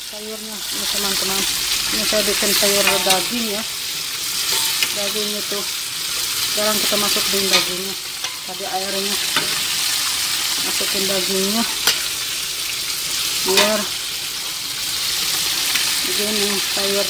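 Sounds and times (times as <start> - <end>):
food sizzling: 0.0 - 17.0
metal ladle stirring food: 4.3 - 5.0, 6.1 - 9.8, 11.7 - 12.4.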